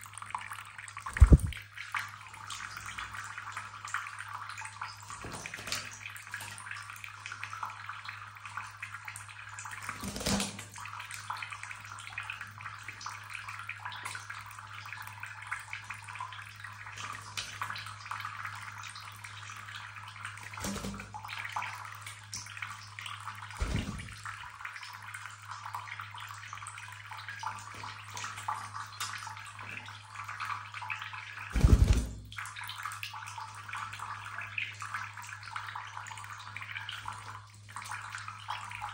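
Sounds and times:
tap water running into basin: 0.0 - 38.9
bird fluttering and splashing: 1.1 - 1.6, 5.1 - 6.8, 9.7 - 10.9, 20.4 - 21.5, 23.3 - 24.6, 31.4 - 32.5.

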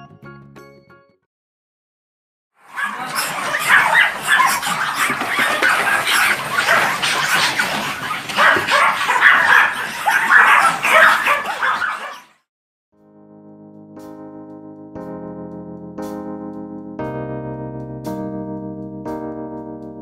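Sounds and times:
small dogs barking and yipping: 2.6 - 12.5.

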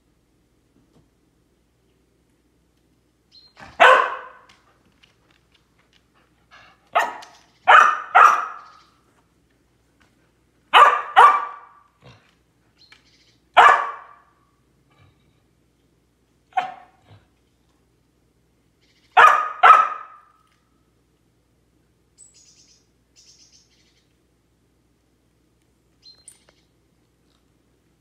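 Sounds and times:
dog barking: 3.7 - 4.5, 6.9 - 8.8, 10.7 - 11.9, 13.6 - 14.3, 16.5 - 17.0, 19.2 - 20.3.

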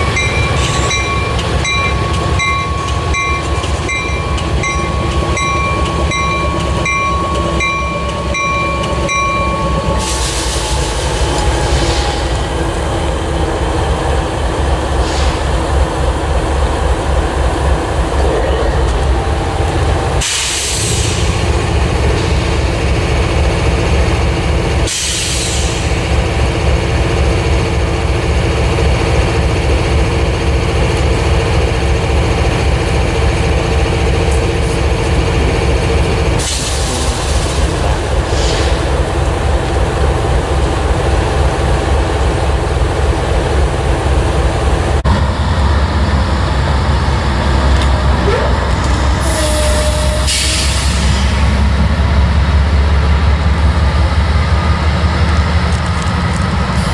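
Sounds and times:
repeated high ringing tone: 0.0 - 9.9
locomotive engine rumbling: 0.0 - 56.9.

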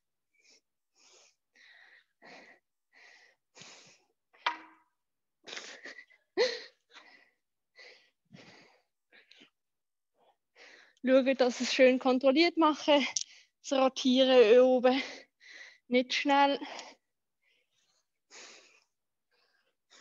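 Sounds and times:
woman breathing heavily: 0.3 - 4.4, 5.4 - 9.5, 10.5 - 11.0, 15.0 - 15.9, 16.6 - 20.0.

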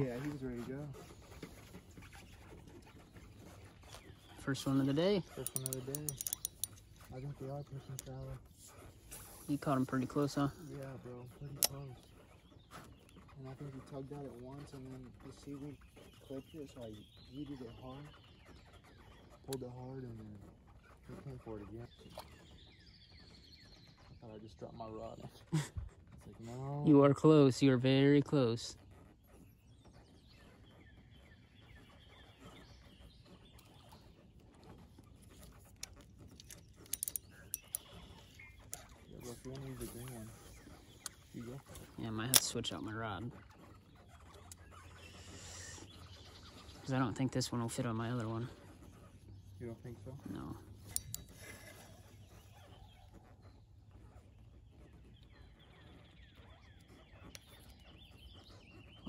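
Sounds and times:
faint bird calls: 28.7 - 59.0.

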